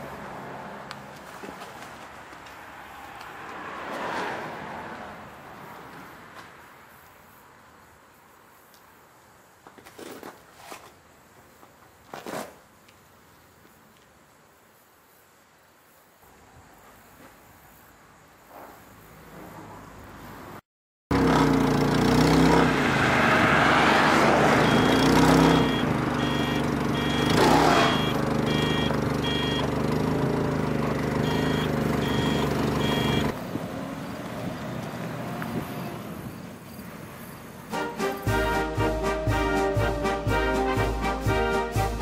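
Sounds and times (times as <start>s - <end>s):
forklift engine running: 24.1s - 34.9s
high back-up alarm beeps: 24.6s - 29.7s, 31.2s - 33.4s.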